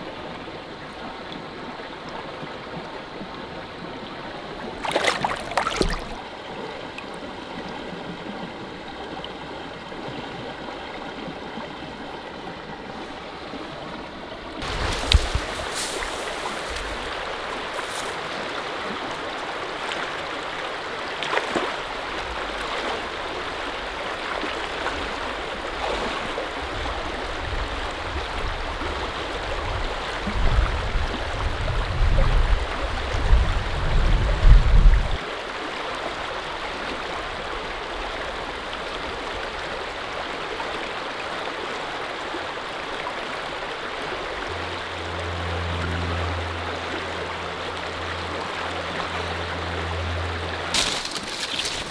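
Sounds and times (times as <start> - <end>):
river rushing over rocks: 4.8 - 6.2
steady low hum: 43.5 - 50.7
low rumble: 44.1 - 50.7.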